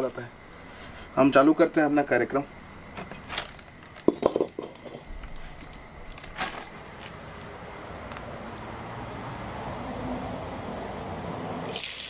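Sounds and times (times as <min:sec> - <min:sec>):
insect chirring: 0:00.0 - 0:12.0
oil hissing in pan: 0:11.7 - 0:12.0.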